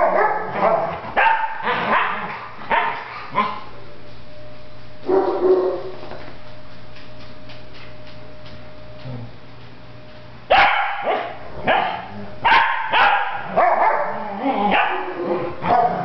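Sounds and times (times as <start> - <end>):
dog barking: 0.0 - 3.6, 5.1 - 5.9, 10.5 - 16.0
low steady hum: 0.0 - 16.0.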